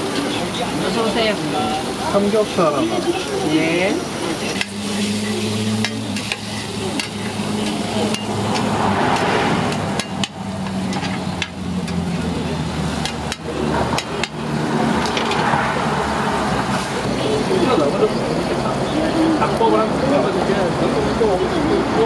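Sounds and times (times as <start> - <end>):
food sizzling: 0.0 - 17.6.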